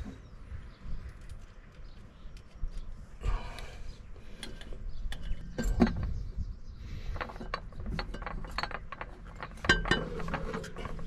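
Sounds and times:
metal clicks and clinks: 7.2s - 11.0s.

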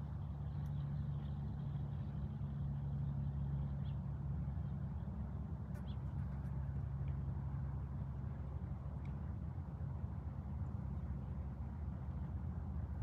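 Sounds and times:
low mechanical hum: 0.0s - 13.0s
faint click: 9.0s - 9.2s.

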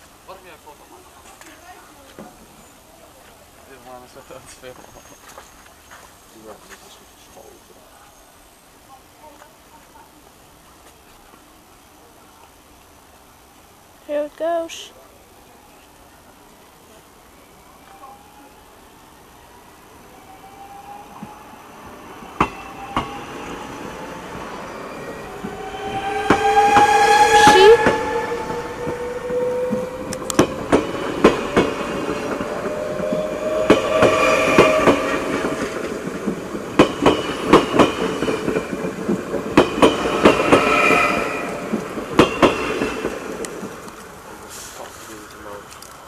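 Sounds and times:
electric train whine: 16.5s - 44.5s
train wheels clacking on rail joints: 25.4s - 44.1s.

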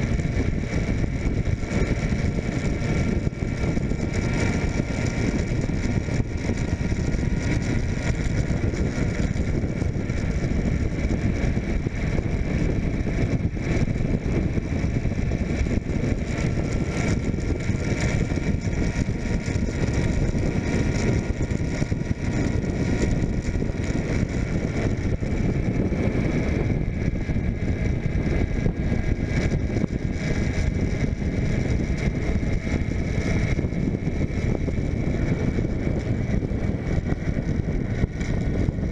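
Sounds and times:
motorcycle engine running: 0.0s - 38.9s
wind rushing over microphone: 0.0s - 38.9s.

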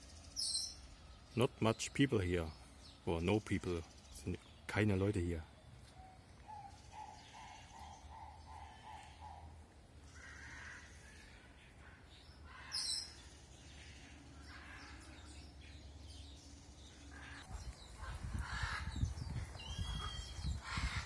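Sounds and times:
animal calls: 5.9s - 15.4s.

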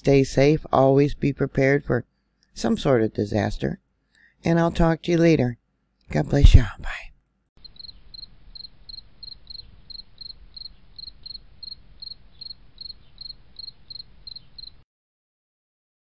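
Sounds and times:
insect chirping: 7.6s - 14.8s.

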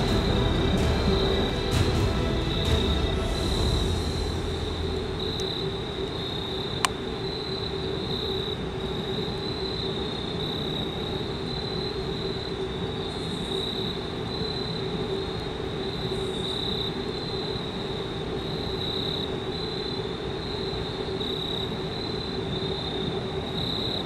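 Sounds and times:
low rumble: 0.0s - 6.8s
insects trilling: 0.0s - 24.0s.

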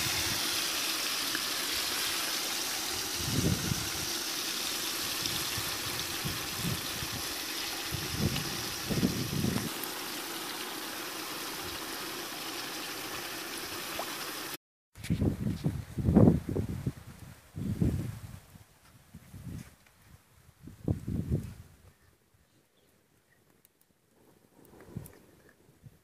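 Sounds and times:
watery rushing hiss: 0.0s - 14.6s.

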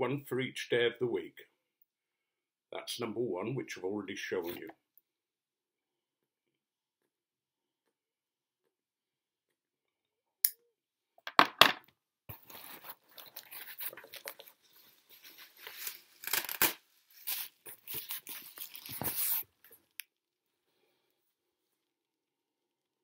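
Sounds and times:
paper packaging rustling and tearing: 12.3s - 19.6s.

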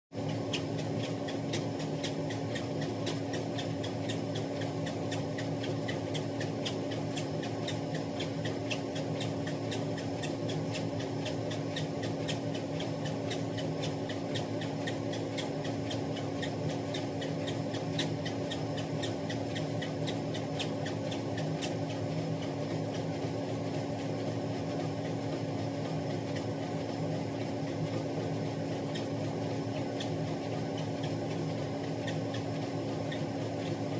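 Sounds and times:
treadmill motor hum: 0.1s - 33.9s.

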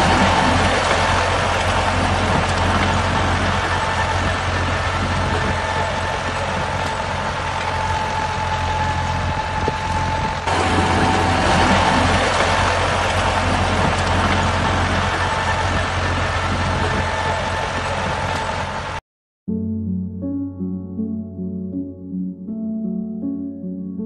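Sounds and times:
tractor engine idling: 0.0s - 19.0s.

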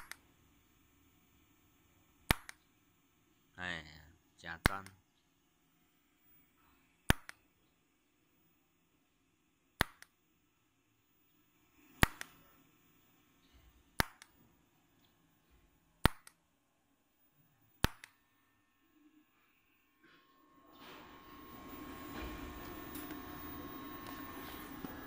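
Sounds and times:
welding arc cracks: 2.3s - 2.6s.

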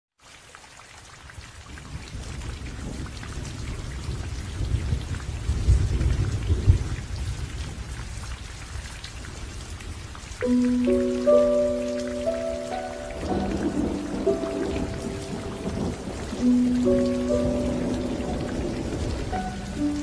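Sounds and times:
steady rain: 0.2s - 20.0s
thunder rumbling: 10.5s - 20.0s.

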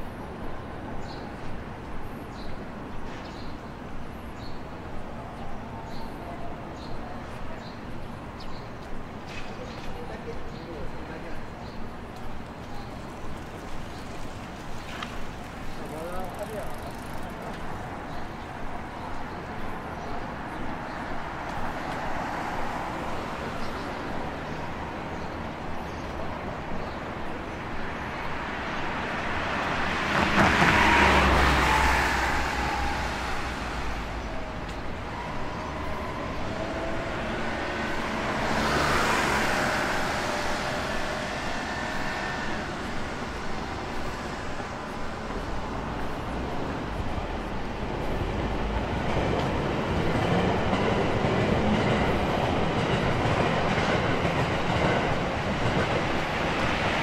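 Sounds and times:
traffic hum: 0.0s - 57.0s
vehicle passing loudly: 29.7s - 47.0s.

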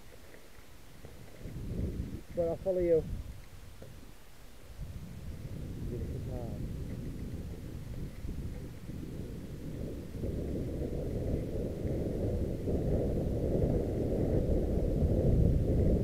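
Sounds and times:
wind buffeting microphone: 0.0s - 16.0s
bike tyres rumbling on dirt: 4.8s - 16.0s
bike rattling: 5.4s - 14.6s.

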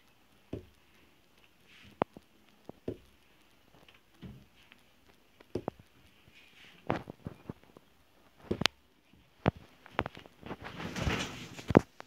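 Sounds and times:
wooden block tapping onto cloth: 0.5s - 0.8s, 2.0s - 3.2s, 5.4s - 5.9s.

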